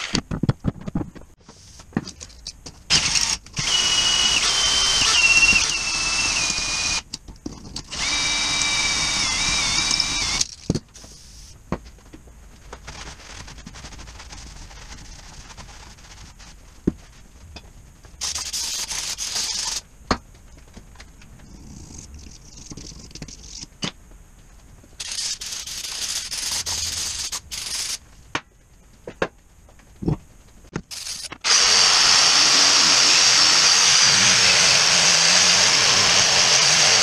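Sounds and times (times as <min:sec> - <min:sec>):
angle grinder running: 0:02.9 - 0:07.0, 0:07.9 - 0:10.4, 0:30.9 - 0:37.0.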